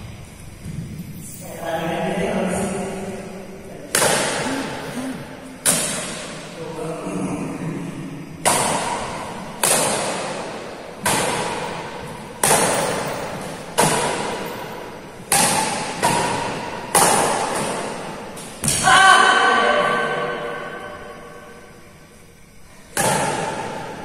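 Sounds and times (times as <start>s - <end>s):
badminton racket hits echoing: 3.9s - 6.6s, 8.4s - 19.1s, 22.9s - 24.0s.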